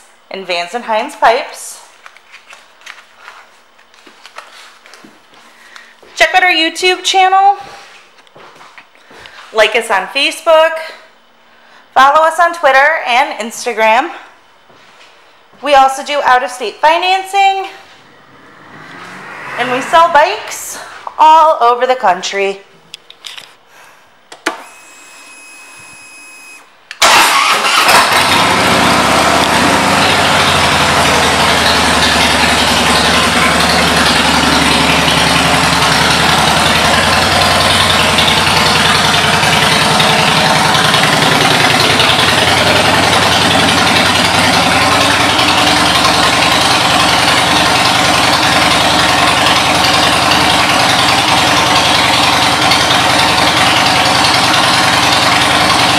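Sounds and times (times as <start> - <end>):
motorcycle engine starting and idling: 17.2 - 21.4, 27.0 - 55.9.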